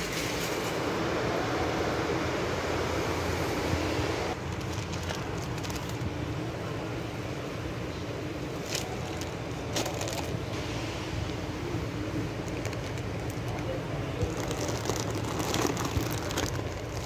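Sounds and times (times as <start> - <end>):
low store hum: 0.0 - 17.0
plastic packaging crinkling: 4.4 - 6.2, 8.5 - 10.5, 12.4 - 17.0.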